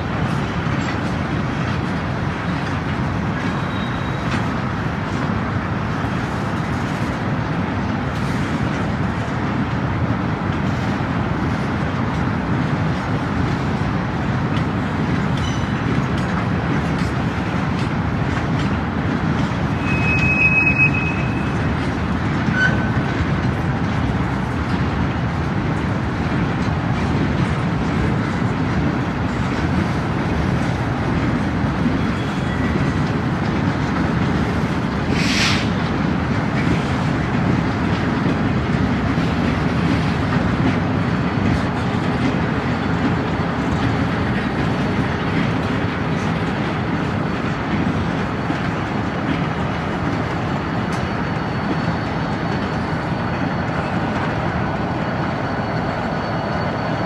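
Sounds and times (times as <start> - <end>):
steel wheels rumbling on rails: 0.0 - 57.0
high wheel squeal: 3.5 - 4.4, 19.7 - 21.7, 22.4 - 23.2, 31.9 - 32.9, 50.5 - 57.0.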